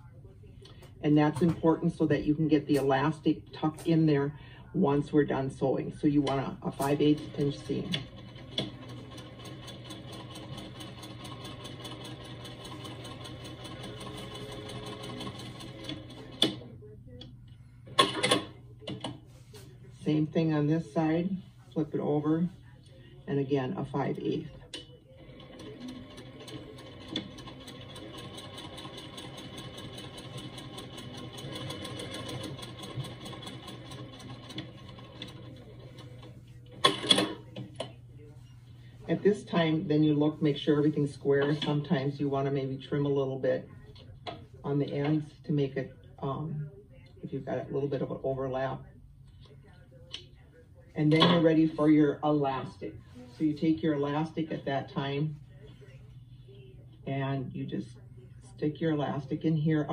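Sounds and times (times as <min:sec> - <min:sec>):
sewing machine stitching: 0:06.2 - 0:16.6, 0:25.2 - 0:37.4.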